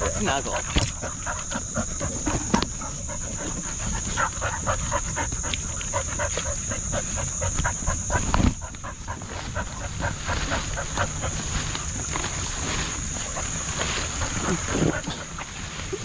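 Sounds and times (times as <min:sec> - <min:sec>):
dog panting rapidly: 0:00.0 - 0:12.2
high insect drone: 0:00.0 - 0:16.0
low rumble of movement: 0:00.0 - 0:16.0.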